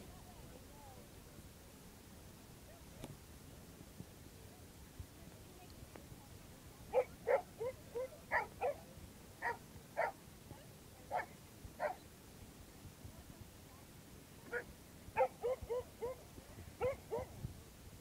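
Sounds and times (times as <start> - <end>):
dogs barking and yipping: 7.0 - 8.8, 15.2 - 16.2, 16.8 - 17.3.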